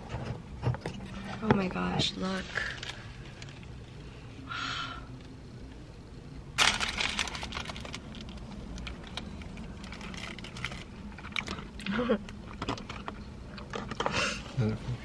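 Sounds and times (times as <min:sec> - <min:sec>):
paper wrapper crinkling: 0:06.6 - 0:11.8.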